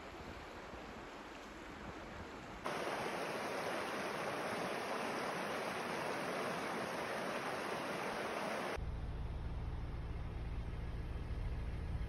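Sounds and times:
river rushing over rocks: 2.7s - 8.8s
low rumble: 8.8s - 12.0s.

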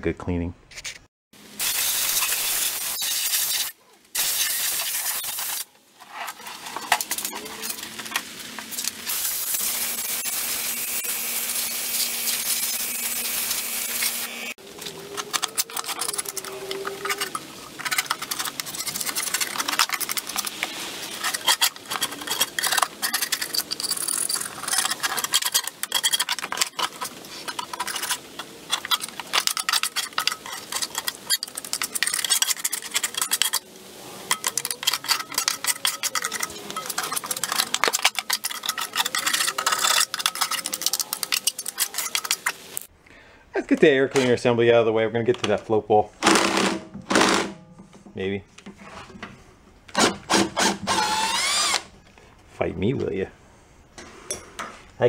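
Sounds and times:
grass clippings scraped and rustling: 1.8s - 42.9s.

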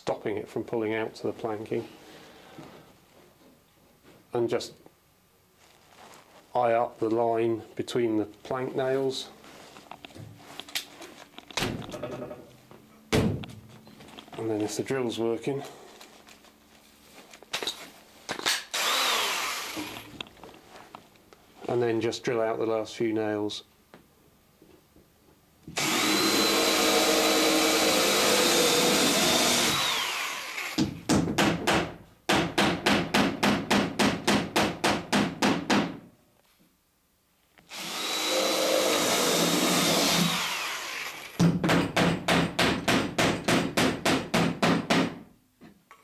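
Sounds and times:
power drill whining: 18.7s - 20.1s, 25.8s - 30.8s, 37.7s - 41.4s.

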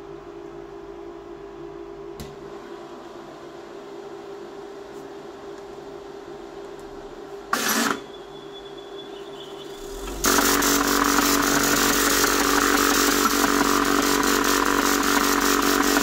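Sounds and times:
steady machine hum: 0.0s - 16.0s
printer noise burst: 7.5s - 16.0s.

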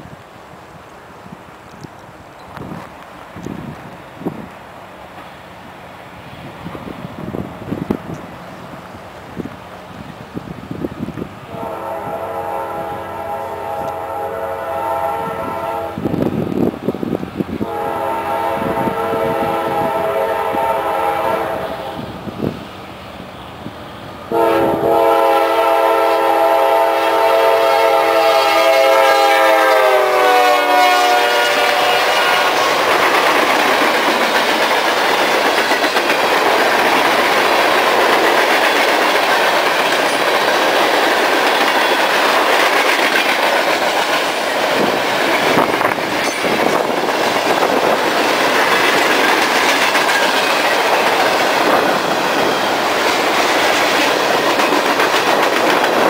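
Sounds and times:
locomotive air horn blasts: 11.5s - 16.1s, 17.6s - 22.2s, 24.3s - 32.9s.

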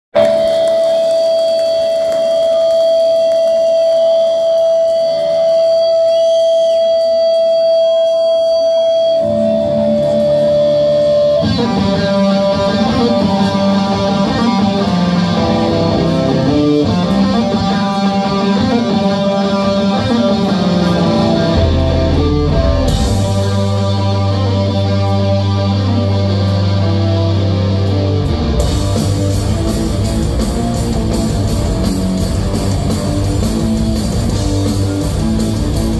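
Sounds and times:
distorted electric guitars: 0.1s - 35.9s
rock band playing heavy riff: 0.2s - 35.9s
deep bass notes: 20.3s - 35.9s.

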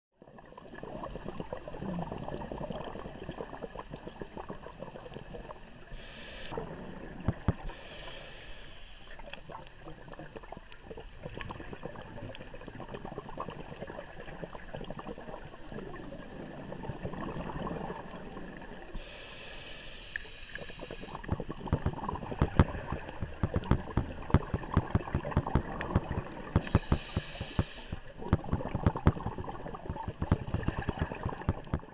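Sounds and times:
bubbling exhalations: 0.7s - 5.6s, 9.4s - 19.2s, 20.5s - 31.9s
hissing regulator inhalations: 5.9s - 6.6s, 7.6s - 9.4s, 19.0s - 21.3s, 26.6s - 28.2s
crackle of sharp clicks: 7.2s - 7.7s, 9.1s - 13.2s, 20.1s - 31.9s.

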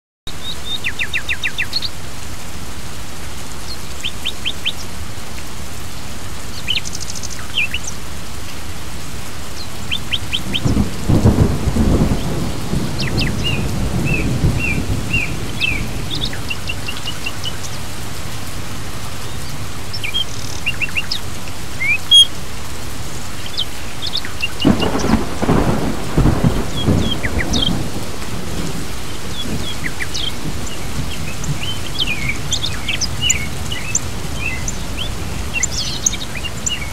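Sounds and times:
birds chirping: 0.3s - 2.0s, 3.6s - 5.0s, 6.4s - 8.6s, 9.5s - 22.4s, 23.1s - 36.9s
steady rain hissing: 0.3s - 36.9s
thunder rolling: 10.0s - 17.6s, 24.6s - 36.0s.

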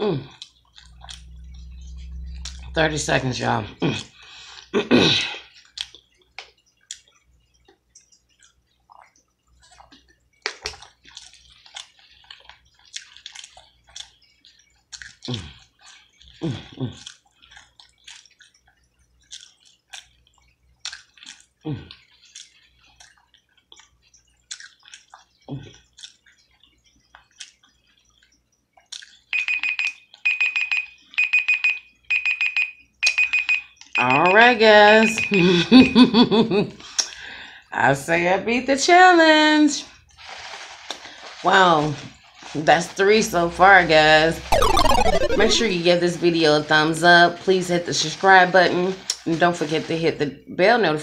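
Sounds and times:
wet chewing and lip smacks: 5.6s - 29.3s
timer alarm beeping: 29.4s - 35.4s, 43.5s - 45.8s.

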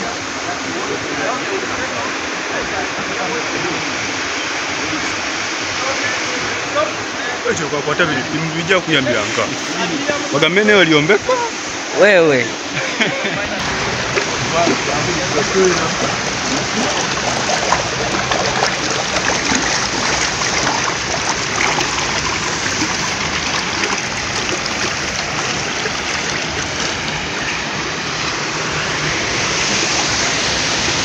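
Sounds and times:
water rushing through concrete channel: 13.5s - 31.0s.

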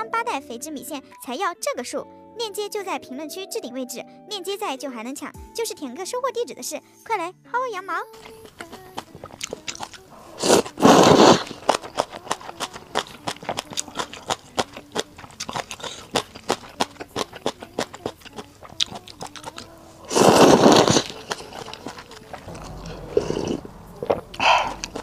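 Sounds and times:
noodles slurped loudly: 8.2s - 22.5s
wet chewing clicks: 8.2s - 25.0s.

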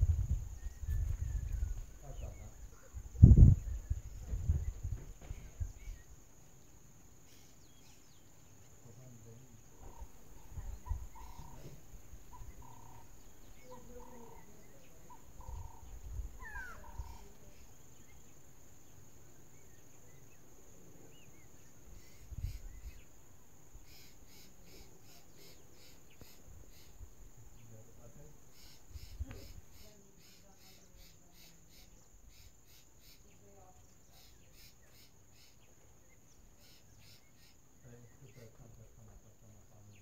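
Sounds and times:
sweeping bird call: 9.8s - 18.4s, 23.8s - 27.0s, 28.5s - 33.5s, 34.1s - 37.6s.

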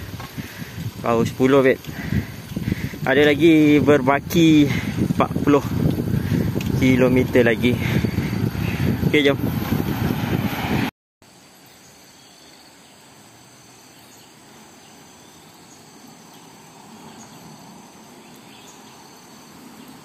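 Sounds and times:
insects chirring: 11.2s - 20.0s.

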